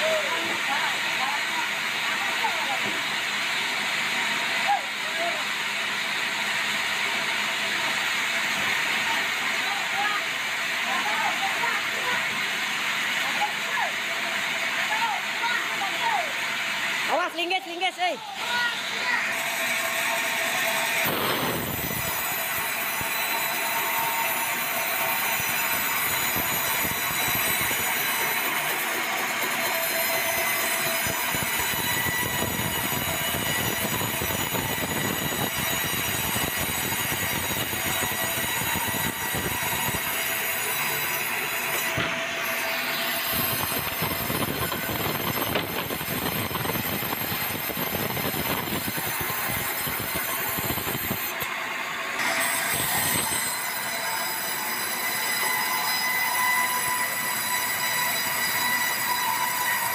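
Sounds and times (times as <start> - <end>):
saw rasping through log: 18.4 - 51.5
band saw blade ringing whine: 18.4 - 59.9.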